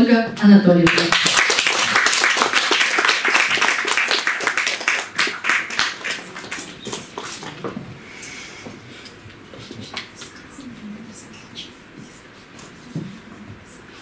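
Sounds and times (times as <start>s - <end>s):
audience applauding: 0.9s - 7.6s.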